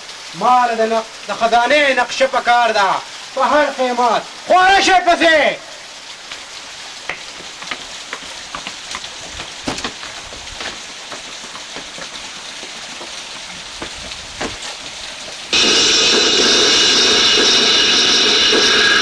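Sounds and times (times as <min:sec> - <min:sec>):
hiss with crackles and pops: 0:05.1 - 0:08.6, 0:14.6 - 0:19.0
loud harsh steady noise: 0:15.5 - 0:19.0.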